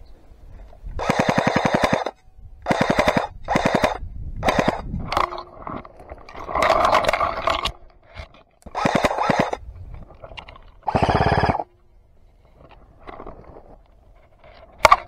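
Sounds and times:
airsoft rifles firing full-auto: 0:01.0 - 0:04.8, 0:08.7 - 0:09.6, 0:10.9 - 0:11.6.

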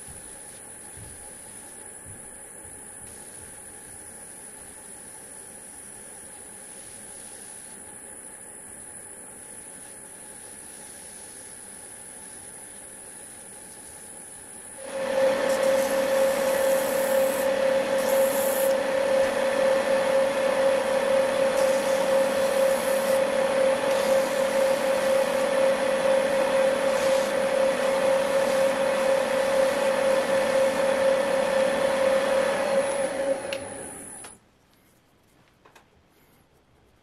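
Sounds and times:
wood lathe whining: 0:14.8 - 0:34.4.

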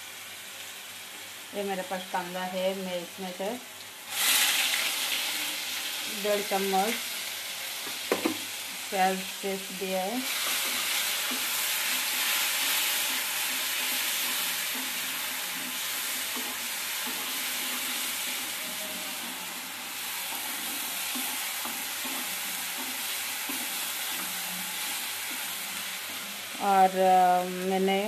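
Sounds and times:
spices sizzling in hot oil: 0:00.0 - 0:28.0
spatula scraping and tapping pan: 0:20.3 - 0:24.5.

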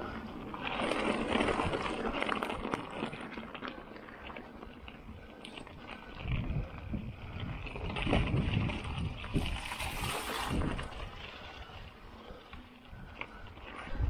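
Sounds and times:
bike clicks and rattles: 0:00.0 - 0:14.0
bike tyres crunching on stones: 0:00.0 - 0:14.0
wind rumble on microphone: 0:04.8 - 0:14.0.

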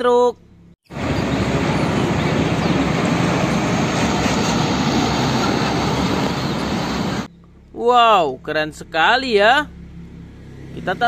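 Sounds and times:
tyre and road noise: 0:00.6 - 0:07.6
truck diesel engine rumble: 0:00.9 - 0:07.3.

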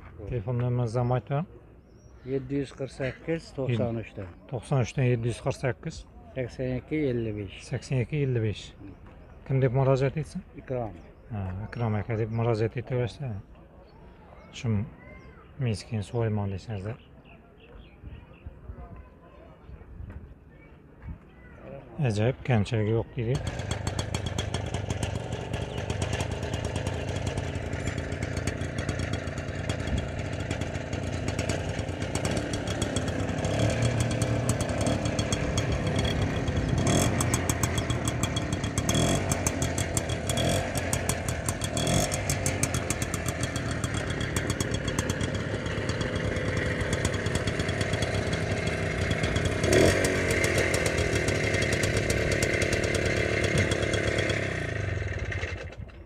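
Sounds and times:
motorcycle engine idling: 0:22.7 - 0:56.0
motorcycle throttle blips: 0:23.4 - 0:56.0.

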